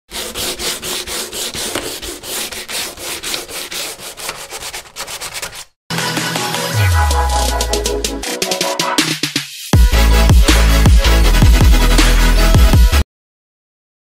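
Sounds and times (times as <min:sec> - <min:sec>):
block scraping flowerpot rim: 0:00.1 - 0:05.7
music with heavy bass: 0:05.9 - 0:13.0.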